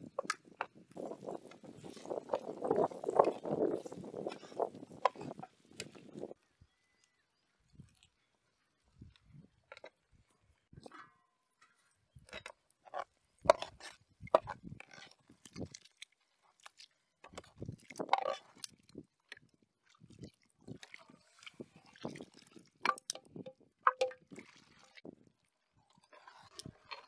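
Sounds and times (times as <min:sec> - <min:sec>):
soft liquid splashes: 0:15.1 - 0:27.0
metal ladle scraping a pan: 0:26.1 - 0:27.0.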